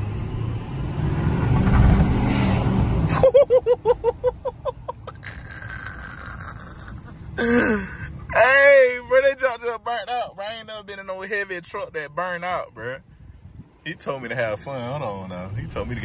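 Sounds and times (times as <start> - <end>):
diesel engine rumble: 0.0 - 16.0
road noise: 0.0 - 16.0
man laughing: 3.1 - 8.4.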